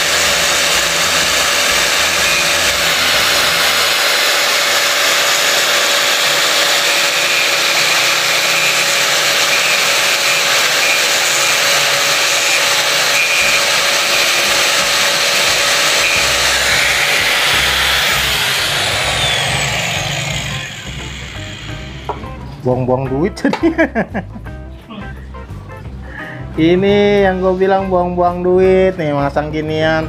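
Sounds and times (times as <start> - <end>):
angle grinder grinding plastic: 0.0 - 22.2
angle grinder winding down: 0.0 - 22.2.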